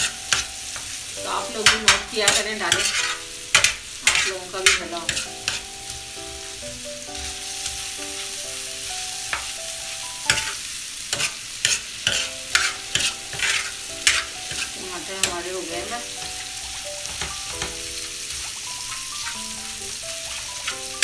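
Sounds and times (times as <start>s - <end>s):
metal spoon scraping griddle: 0.0s - 0.9s, 1.6s - 5.7s, 10.3s - 21.0s
food sizzling on a griddle: 0.0s - 21.0s.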